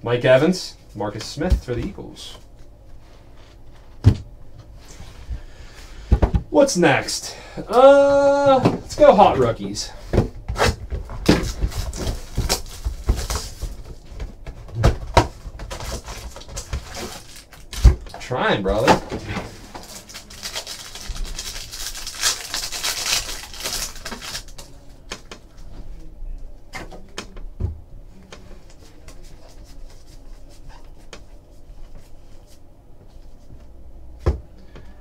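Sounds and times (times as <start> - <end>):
foil wrapper crinkling: 15.8 - 17.8, 19.7 - 24.8.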